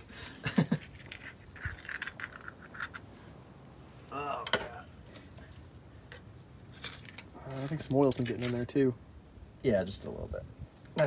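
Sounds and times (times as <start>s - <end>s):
screwdriver clinking and scraping metal: 0.8s - 3.1s.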